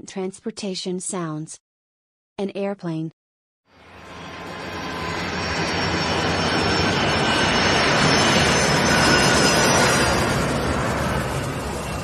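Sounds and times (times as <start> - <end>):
jet engines roaring: 3.8 - 12.0.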